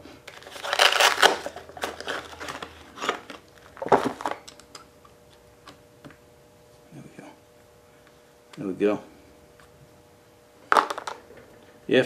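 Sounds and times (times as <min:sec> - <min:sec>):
plastic packaging crinkling: 0:00.3 - 0:04.6.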